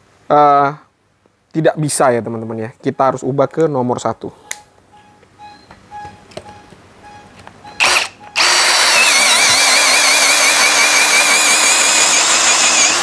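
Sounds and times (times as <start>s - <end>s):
cordless drill boring into wood: 7.8s - 13.0s.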